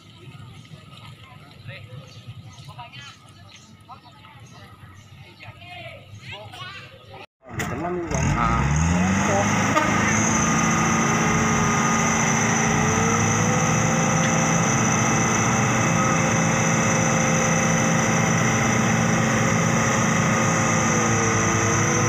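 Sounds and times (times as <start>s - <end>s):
truck engine running under load: 7.4s - 22.0s.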